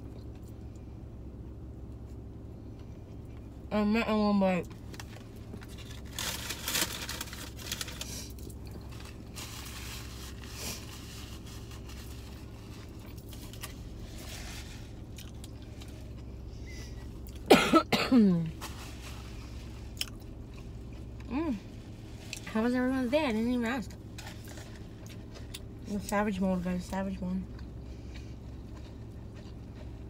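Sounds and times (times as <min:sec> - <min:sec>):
car cabin hum: 0:00.0 - 0:30.0
person chewing food: 0:15.0 - 0:16.4, 0:19.9 - 0:21.3, 0:27.5 - 0:30.0
person coughing: 0:17.5 - 0:18.4.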